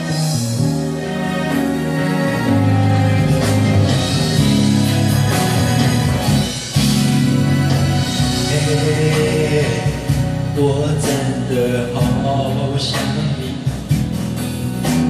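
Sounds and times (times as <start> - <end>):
pop ballad backing track: 0.0 - 15.0
man singing into microphone: 8.3 - 13.9.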